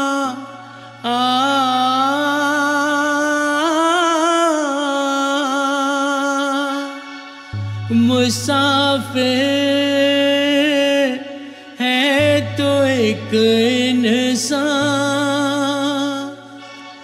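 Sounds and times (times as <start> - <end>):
chant-like melody: 0.0 - 17.0
low drone: 7.6 - 17.0.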